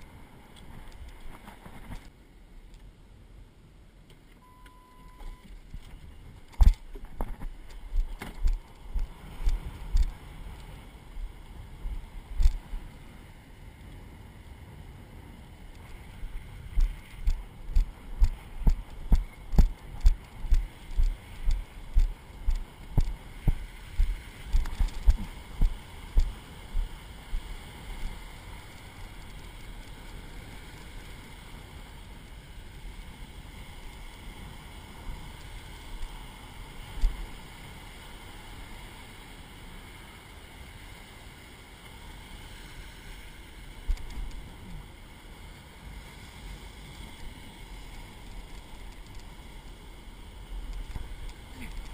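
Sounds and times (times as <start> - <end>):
wind: 0.0 - 51.9
footsteps on wet sand: 16.6 - 27.5.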